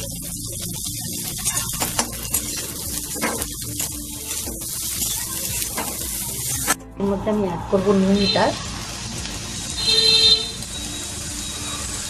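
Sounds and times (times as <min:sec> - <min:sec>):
vegetables sizzling in oil: 0:00.0 - 0:06.8, 0:07.8 - 0:12.0
metal spatula scraping a wok: 0:01.3 - 0:06.8.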